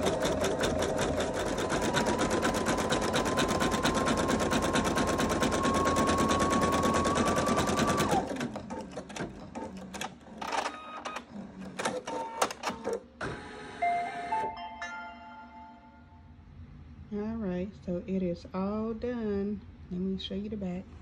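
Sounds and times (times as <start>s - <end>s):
embroidery machine stitching: 0.0s - 13.6s
mechanical clicks and whirs: 8.5s - 13.8s.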